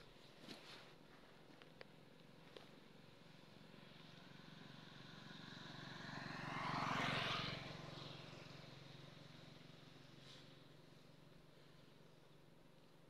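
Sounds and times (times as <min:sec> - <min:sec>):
motor vehicle passing by: 0:03.6 - 0:11.9.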